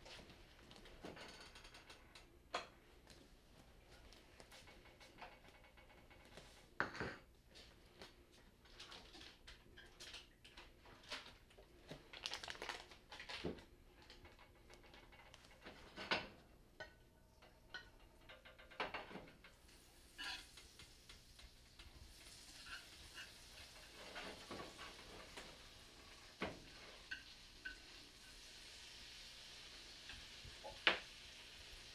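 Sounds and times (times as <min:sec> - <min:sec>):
pan and utensil clinking: 0:15.8 - 0:25.5, 0:26.2 - 0:28.0
fat sizzling in pan: 0:19.6 - 0:31.9.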